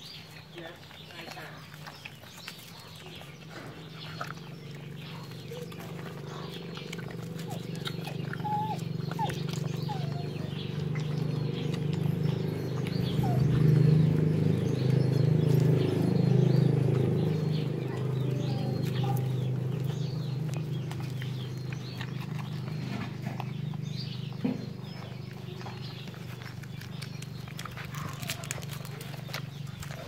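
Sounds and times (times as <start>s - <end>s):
puppies squeaking: 0.0s - 30.0s
puppies suckling and smacking: 0.0s - 30.0s.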